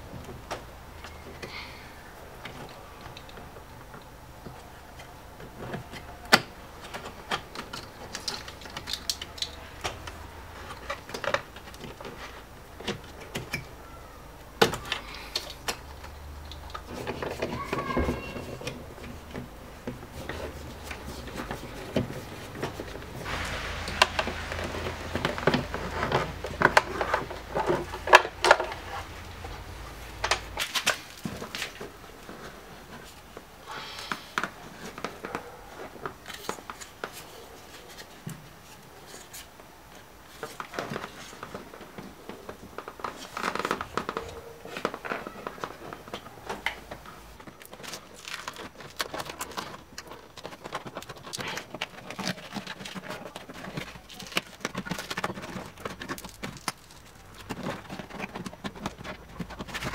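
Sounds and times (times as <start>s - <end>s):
foam sheet crackling and tearing: 20.0s - 33.3s, 47.3s - 59.9s.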